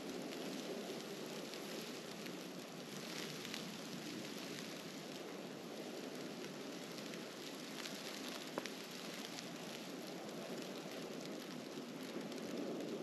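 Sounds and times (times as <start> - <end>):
snowstorm hiss: 0.0 - 13.0
faint ticks and clicks: 6.4 - 13.0.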